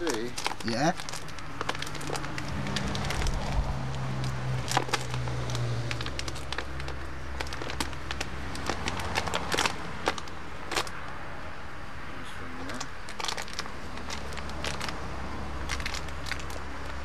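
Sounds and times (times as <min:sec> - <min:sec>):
dried animal skin crackling: 0:00.0 - 0:11.2, 0:12.7 - 0:17.0.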